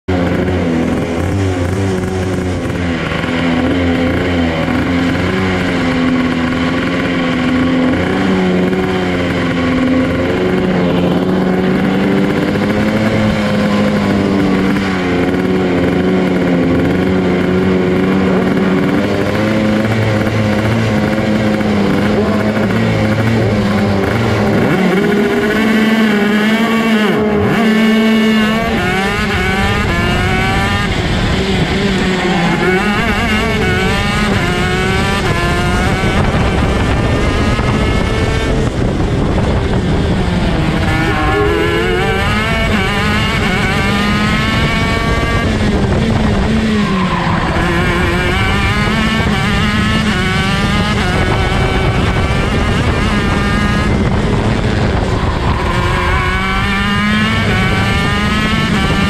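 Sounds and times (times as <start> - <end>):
kart two-stroke engine revving: 0.0 - 59.0.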